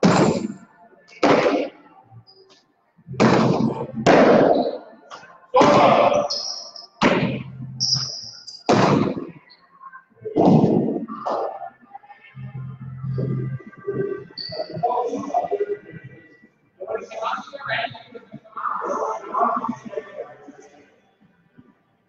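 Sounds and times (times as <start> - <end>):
short high squeaks: 7.8 - 8.7.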